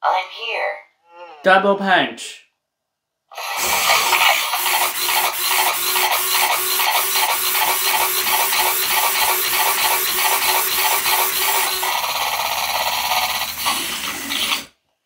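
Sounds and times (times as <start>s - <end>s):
robot servo motors whirring: 3.4s - 14.7s.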